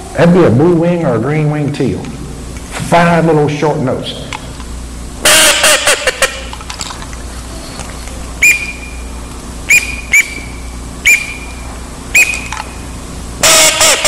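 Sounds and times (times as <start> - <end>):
duck call whistle peeps: 5.2 - 6.4, 8.4 - 9.1, 9.7 - 12.6, 13.4 - 14.0.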